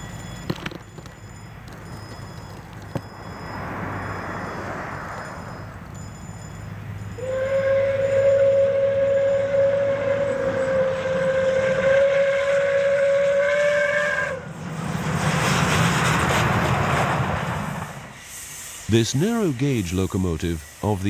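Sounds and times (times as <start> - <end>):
locomotive chuffing and steam: 3.2 - 21.0
steam locomotive whistle: 7.1 - 14.6.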